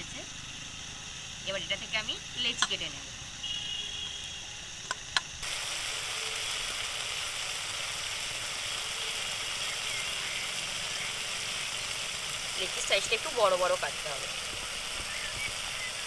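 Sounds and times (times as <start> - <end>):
paste frying in oil: 4.9 - 16.0.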